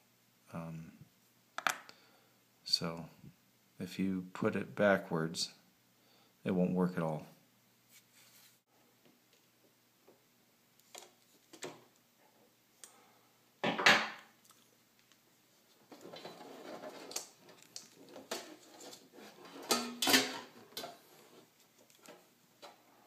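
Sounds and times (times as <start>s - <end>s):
rustling handling noise: 7.8s - 8.7s, 14.5s - 22.9s.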